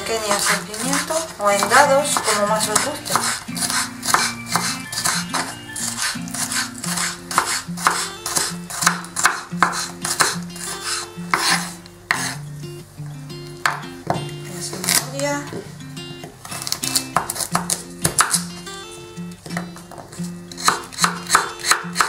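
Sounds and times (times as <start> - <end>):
background music: 0.0 - 22.0
knife chopping on wooden board: 0.3 - 12.4, 16.6 - 18.5, 19.5 - 22.0.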